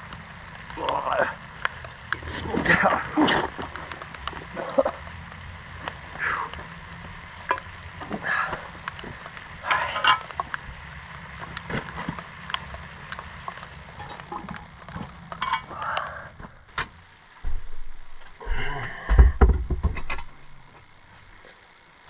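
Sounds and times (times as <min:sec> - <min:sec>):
food sizzling in a pot: 0:00.0 - 0:16.0
campfire crackles: 0:00.0 - 0:22.0.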